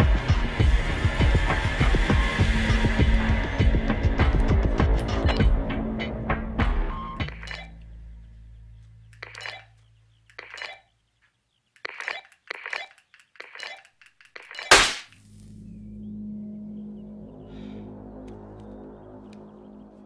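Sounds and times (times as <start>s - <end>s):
sharp clicks and clinks: 9.2s - 9.7s, 11.8s - 15.0s.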